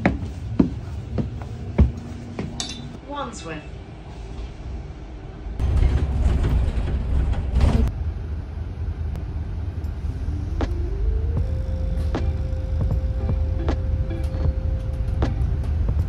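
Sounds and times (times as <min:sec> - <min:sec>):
bus engine rumble: 0:00.0 - 0:16.0
bus engine whine rising: 0:07.9 - 0:16.0.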